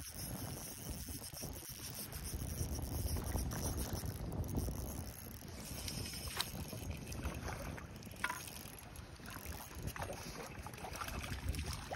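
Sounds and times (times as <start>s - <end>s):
wind on microphone: 0.0s - 11.9s.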